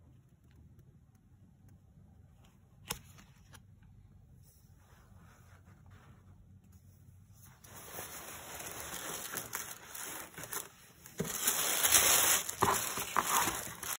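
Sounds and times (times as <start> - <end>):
tissue paper crinkling: 7.4 - 14.0.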